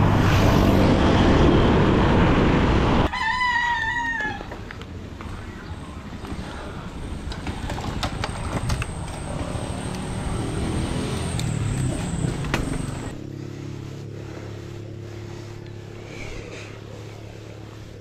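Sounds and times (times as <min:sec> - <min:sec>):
motor vehicle engine: 0:00.0 - 0:03.1, 0:04.9 - 0:18.0
bike tyre rumble on concrete: 0:04.3 - 0:18.0.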